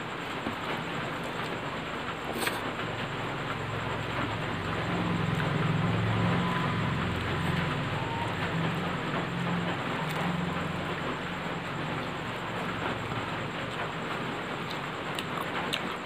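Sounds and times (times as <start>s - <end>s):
heavy rain falling: 0.0s - 16.0s.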